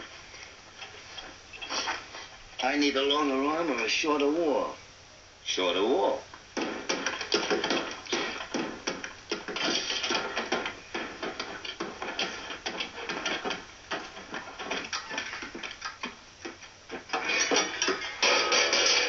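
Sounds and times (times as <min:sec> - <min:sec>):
faint music: 0:00.0 - 0:19.0
tools and parts clattering: 0:06.7 - 0:19.0.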